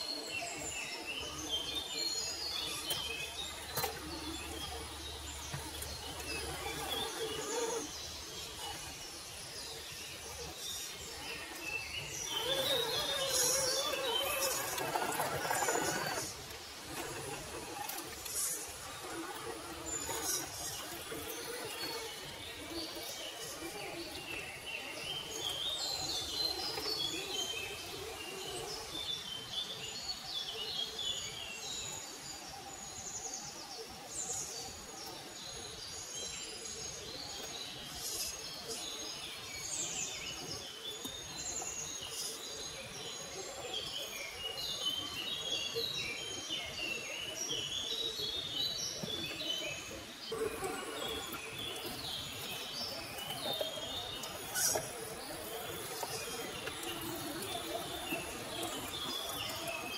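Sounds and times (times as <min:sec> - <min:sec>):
songbirds chirping and singing: 0:00.0 - 0:59.9.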